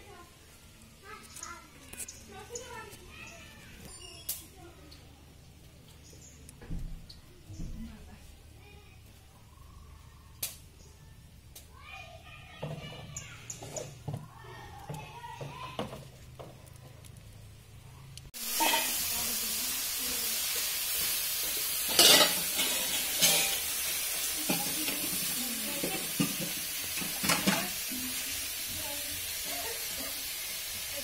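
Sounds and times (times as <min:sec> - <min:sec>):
food sizzling in pan: 0:18.3 - 0:31.0
utensil clinking against pan: 0:21.9 - 0:23.6.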